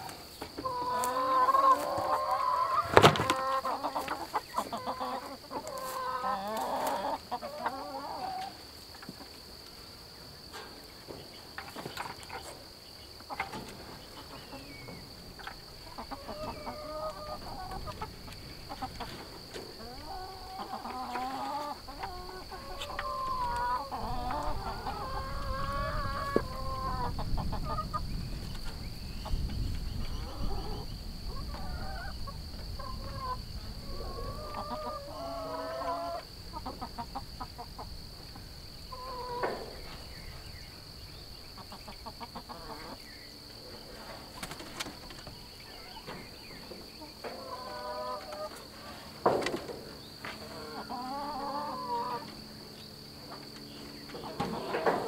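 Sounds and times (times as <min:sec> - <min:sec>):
chickens clucking: 0:00.0 - 0:55.0.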